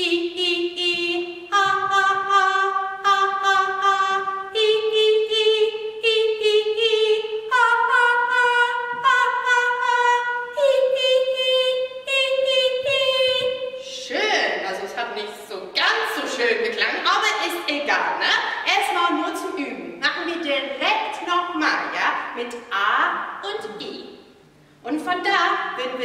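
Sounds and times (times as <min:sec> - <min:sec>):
woman singing vocal warm-up: 0:00.0 - 0:14.0.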